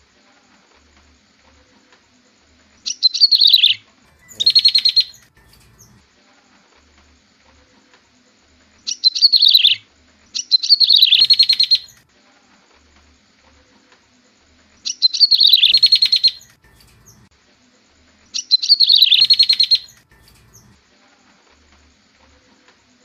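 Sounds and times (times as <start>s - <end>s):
bird chattering trill: 2.8s - 5.9s, 8.8s - 12.0s, 14.8s - 17.3s, 18.4s - 20.0s.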